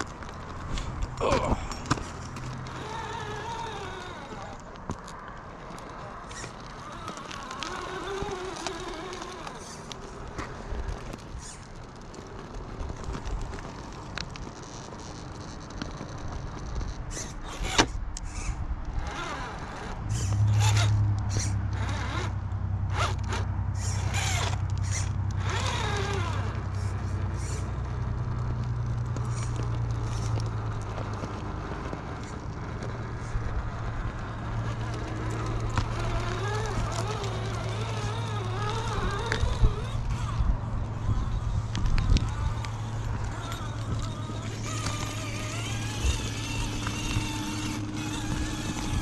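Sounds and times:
small motor and gear whine: 0.0 - 49.0
tires crunching over rock: 0.0 - 49.0
steady low hum: 16.9 - 49.0.

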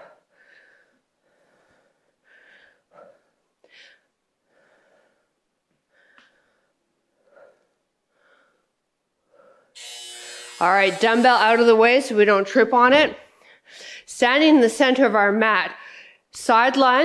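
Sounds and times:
woman breathing hard: 0.0 - 9.8, 13.4 - 14.1.

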